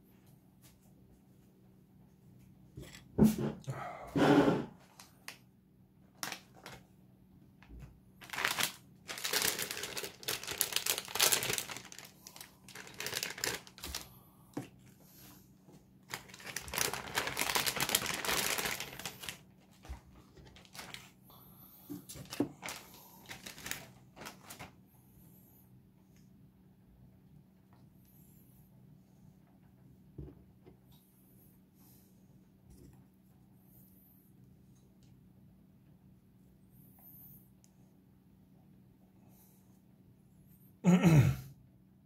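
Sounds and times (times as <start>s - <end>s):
crinkling and rustling: 6.1s - 6.9s, 7.6s - 15.1s, 15.7s - 21.2s, 21.9s - 24.8s.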